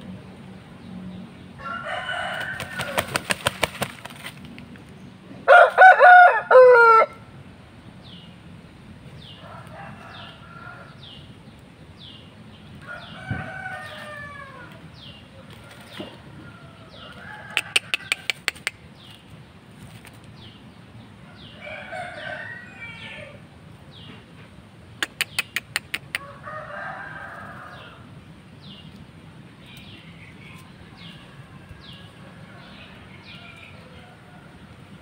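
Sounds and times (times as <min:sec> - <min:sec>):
rooster clucking: 0:01.6 - 0:04.0, 0:15.4 - 0:18.9, 0:25.0 - 0:27.8.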